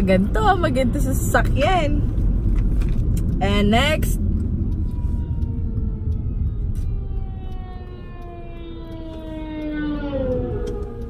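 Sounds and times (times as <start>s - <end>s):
road rumble inside car: 0.0s - 11.0s
siren wail falling in pitch: 4.3s - 11.0s.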